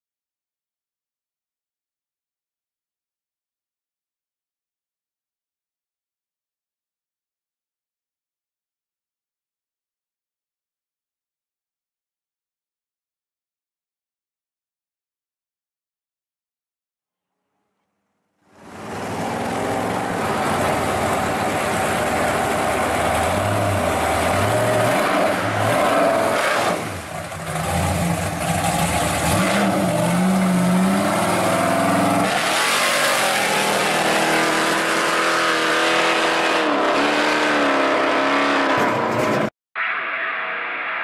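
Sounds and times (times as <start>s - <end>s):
car engine accelerating hard: 18.5s - 39.5s.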